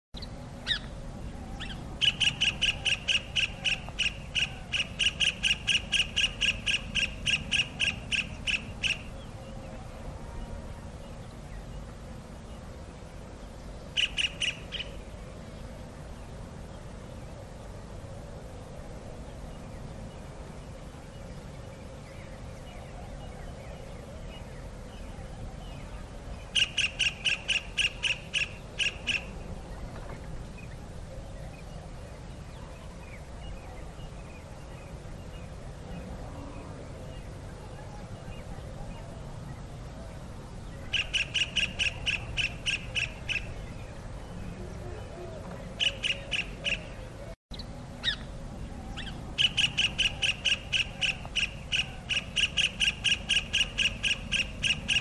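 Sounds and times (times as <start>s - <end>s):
kingfisher piping calls: 0.2s - 1.0s, 1.6s - 9.1s, 14.0s - 15.0s, 26.5s - 29.4s, 40.9s - 43.6s, 45.8s - 48.3s, 49.0s - 55.0s.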